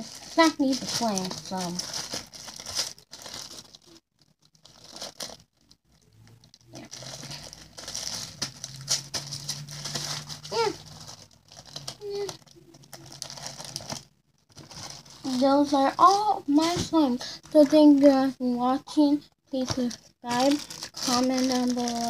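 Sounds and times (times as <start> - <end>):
plastic bag crinkling: 0.0 - 18.0, 19.6 - 22.0.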